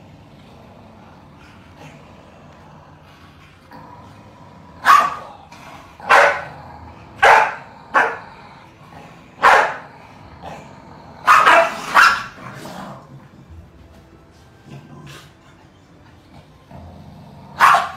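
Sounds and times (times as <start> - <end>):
dog barking: 4.8 - 5.4, 6.1 - 6.5, 7.2 - 8.2, 9.4 - 9.9, 11.2 - 12.4, 17.6 - 17.9.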